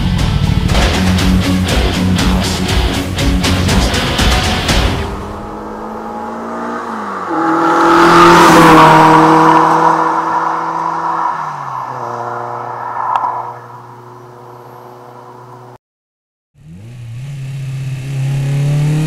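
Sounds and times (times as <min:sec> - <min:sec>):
car engine passing by: 0:05.0 - 0:15.8.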